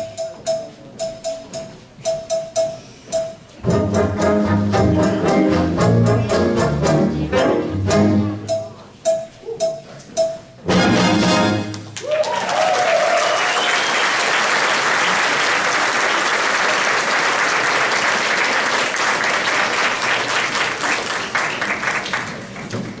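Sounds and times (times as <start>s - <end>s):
audience applauding: 12.0s - 22.7s.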